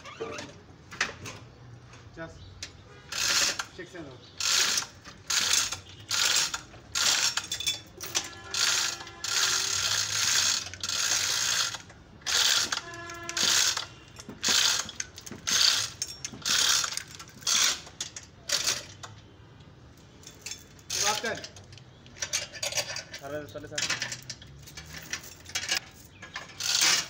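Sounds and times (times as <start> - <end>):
chain rattling through hoist block: 3.1 - 3.7, 4.4 - 19.1, 20.2 - 27.0
hoist pawl ratcheting: 3.1 - 19.2, 20.4 - 27.0.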